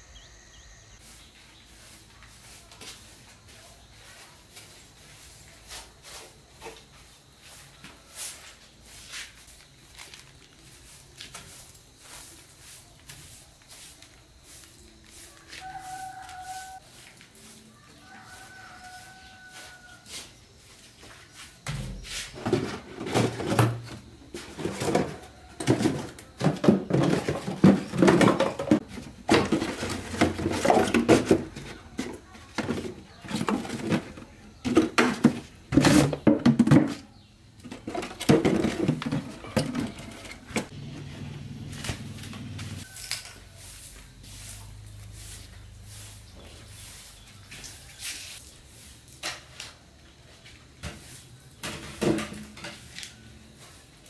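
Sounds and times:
plastic bottles knocking in wooden crate: 22.4 - 40.7.

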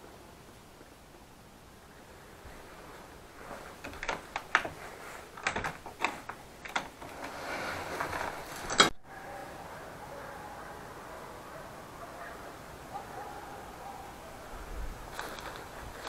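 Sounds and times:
steady low hiss: 0.0 - 16.0
door latch clicking: 5.4 - 7.2.

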